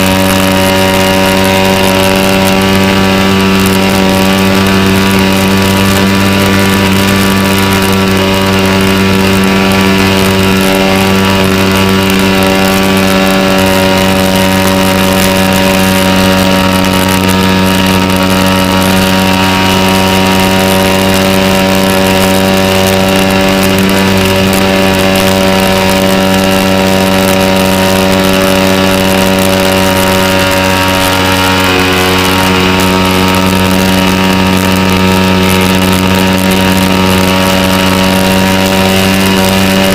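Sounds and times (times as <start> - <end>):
model airplane engine running: 0.0 - 39.9.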